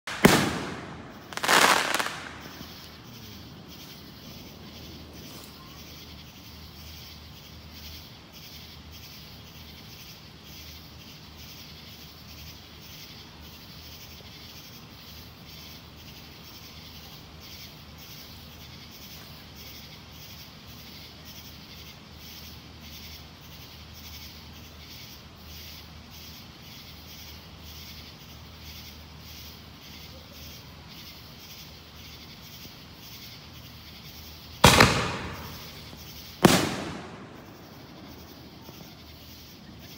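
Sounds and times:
firework bursting and crackling: 0:00.0 - 0:05.6, 0:34.6 - 0:39.9.

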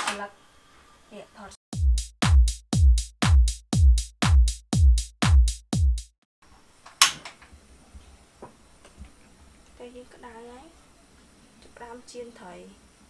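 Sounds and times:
drum machine kick beats: 0:01.7 - 0:06.3.

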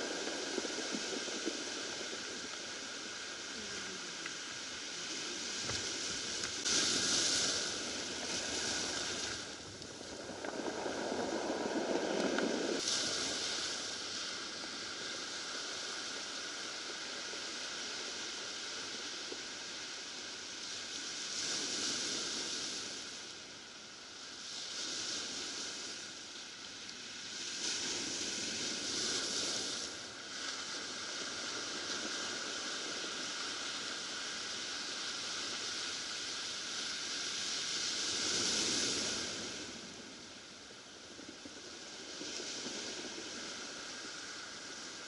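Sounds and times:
surf washing over cobble beach: 0:00.0 - 0:45.0.

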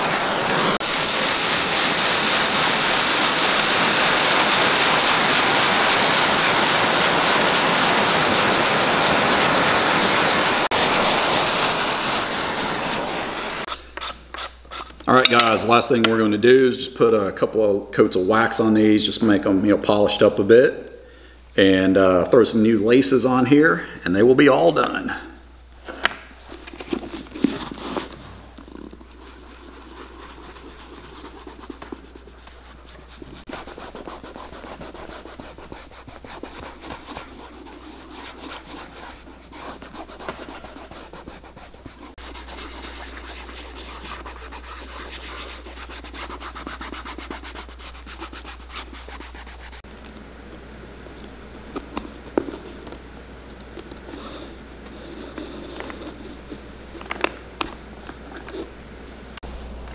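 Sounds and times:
cloth rubbing leather boot: 0:26.4 - 0:49.9, 0:53.8 - 0:57.2.

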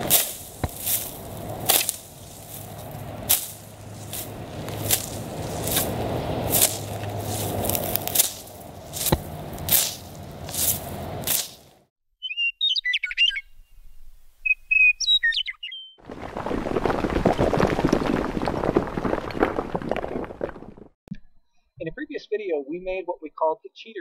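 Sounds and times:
gritty crumbling noise: 0:00.0 - 0:11.7, 0:16.0 - 0:21.0
scythe swishing through dry grass: 0:00.0 - 0:11.8
bird chirping: 0:12.2 - 0:16.0.

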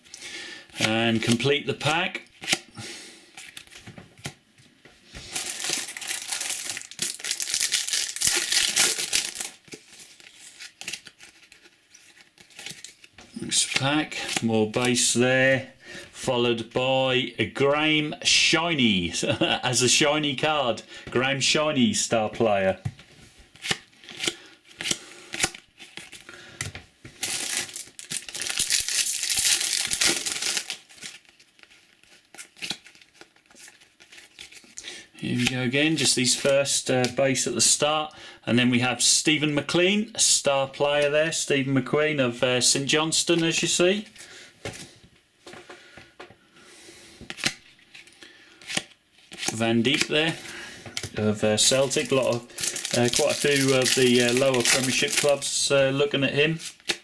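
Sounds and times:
cards rustling: 0:05.0 - 0:15.1, 0:23.6 - 0:37.1, 0:47.3 - 0:55.9
foil wrapper crinkling: 0:05.2 - 0:13.1, 0:27.1 - 0:34.8, 0:51.6 - 0:55.4.

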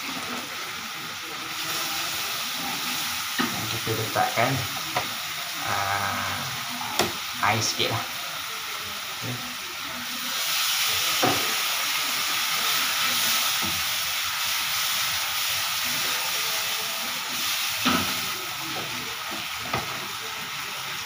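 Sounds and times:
sauce sizzling in wok: 0:00.0 - 0:21.0.

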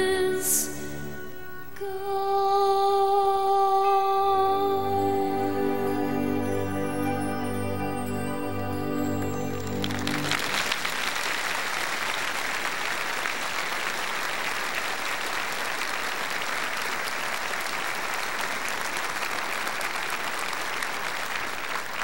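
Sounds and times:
large audience applauding: 0:08.8 - 0:22.0.

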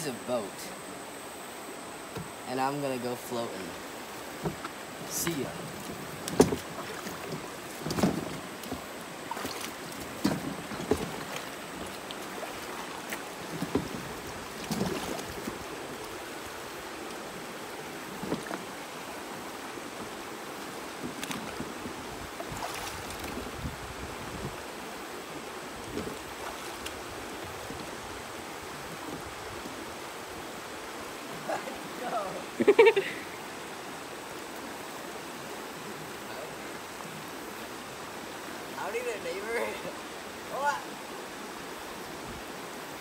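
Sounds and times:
river rushing over rocks: 0:00.0 - 0:43.0
splashes of wading: 0:03.7 - 0:38.0.

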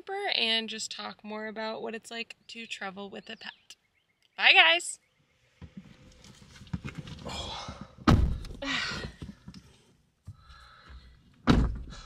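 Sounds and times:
rustling and handling noise: 0:05.6 - 0:07.3
door shutting with heavy thunk: 0:08.0 - 0:08.6, 0:11.5 - 0:12.0.

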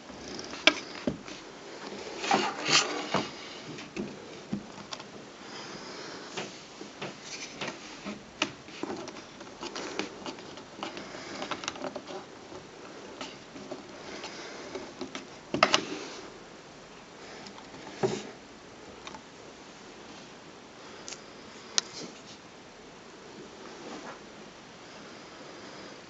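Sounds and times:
hands handling metal lamp parts: 0:06.4 - 0:16.1.

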